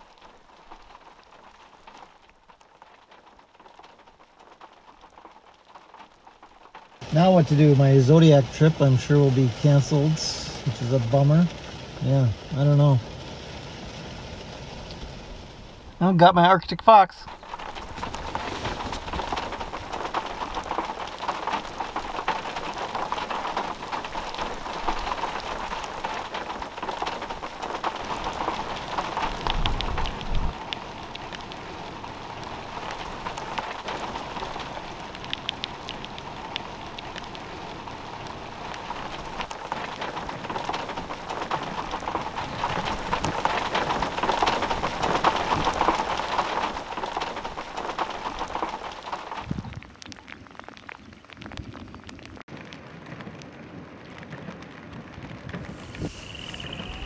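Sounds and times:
heavy rain striking water: 0.0 - 57.0
low rumble: 55.1 - 57.0.

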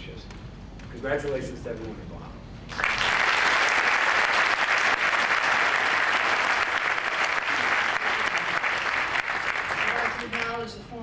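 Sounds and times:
audience applauding: 2.7 - 10.6.

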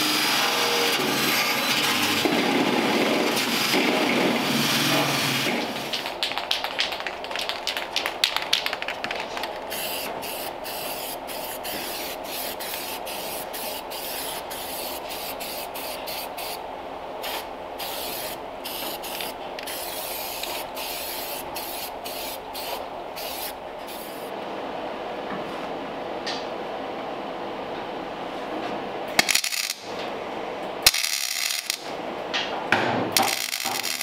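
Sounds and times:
angle grinder on sheet metal: 0.0 - 2.3.

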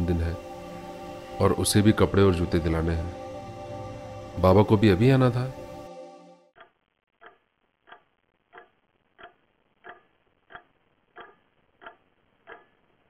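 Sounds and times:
clock ticking: 6.6 - 13.0.

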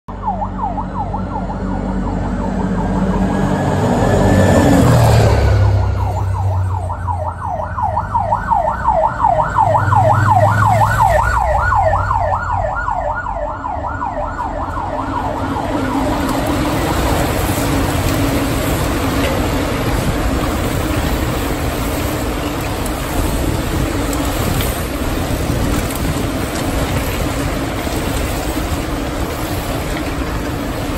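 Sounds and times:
siren wailing and yelping: 0.1 - 18.3
loud low vehicle rumble: 0.1 - 30.9
bike tyres on cobblestones: 13.4 - 30.9.

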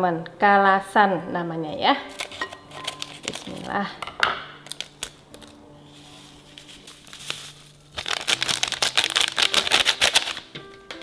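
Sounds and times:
plastic sachet crinkling: 2.1 - 3.8, 4.6 - 5.6, 6.2 - 10.5.

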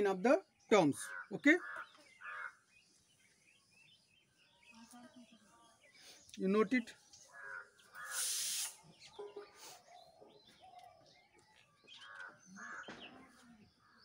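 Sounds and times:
short hissing rustle: 8.0 - 9.0.

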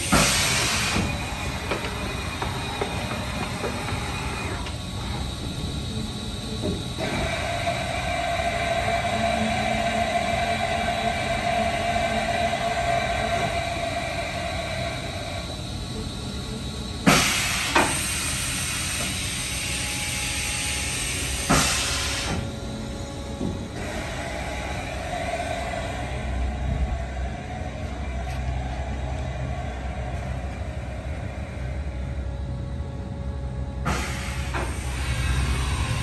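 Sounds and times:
air hiss: 0.0 - 2.0, 17.0 - 22.5, 33.8 - 36.0
machining center humming and whining: 0.0 - 36.0.

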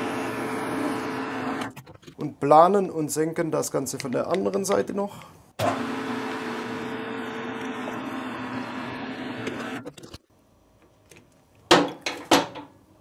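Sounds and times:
metal lathe humming: 5.6 - 9.8.

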